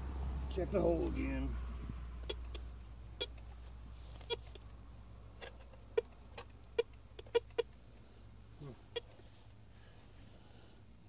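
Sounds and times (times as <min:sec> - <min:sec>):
metal detector chirps: 0:02.2 - 0:03.4, 0:04.2 - 0:04.6, 0:05.9 - 0:07.7, 0:08.9 - 0:09.2.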